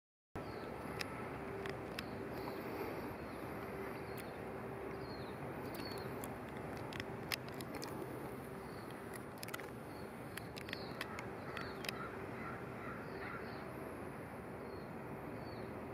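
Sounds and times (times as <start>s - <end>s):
high bird chirps: 0.4s - 6.2s, 9.9s - 13.7s
faint clicks: 0.4s - 12.1s
low background rumble and hum: 0.4s - 15.9s.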